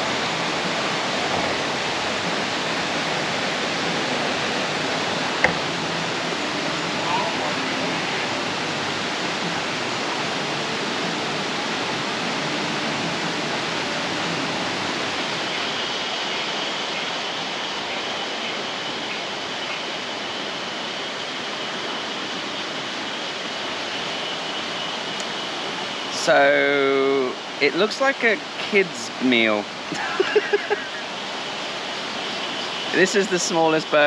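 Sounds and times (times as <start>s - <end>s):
fast-flowing river rushing: 0.0s - 34.0s.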